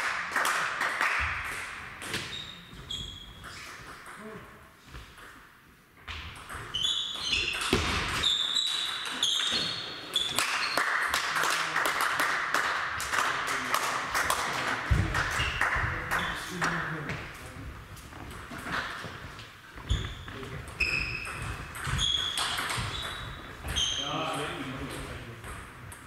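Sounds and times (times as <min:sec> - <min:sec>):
shoes squeaking on floor: 0:02.0 - 0:04.0, 0:06.6 - 0:10.8, 0:18.1 - 0:24.6.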